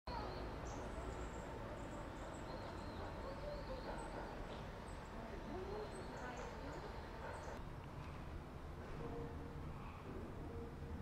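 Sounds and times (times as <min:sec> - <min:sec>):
bird chirps: 0:00.1 - 0:07.6.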